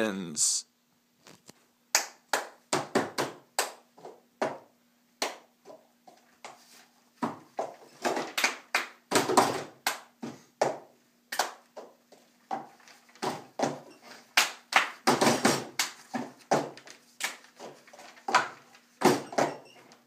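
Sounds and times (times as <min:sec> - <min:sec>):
hand claps: 0:01.9 - 0:03.9, 0:05.2 - 0:05.5, 0:08.3 - 0:09.1, 0:09.8 - 0:10.2, 0:11.3 - 0:11.6, 0:14.3 - 0:15.1, 0:15.7 - 0:16.1.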